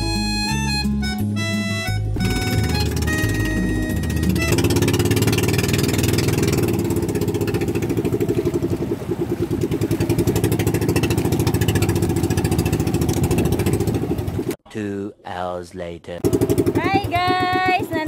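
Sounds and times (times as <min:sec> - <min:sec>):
boat engine chugging: 0:00.1 - 0:14.6, 0:16.2 - 0:18.0.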